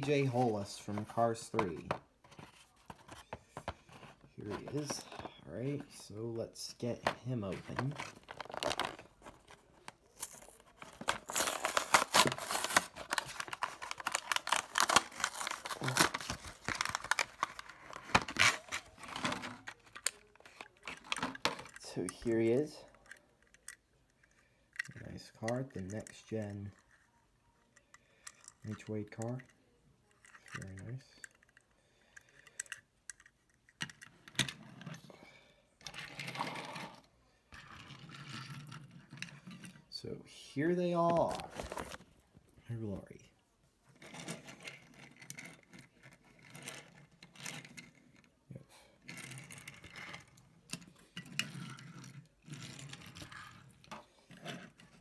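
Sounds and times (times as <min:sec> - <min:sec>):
plastic crackling and crinkling: 0:07.0 - 0:23.8, 0:41.0 - 0:42.3
card tearing: 0:07.7 - 0:09.4, 0:10.1 - 0:21.5, 0:41.0 - 0:42.0.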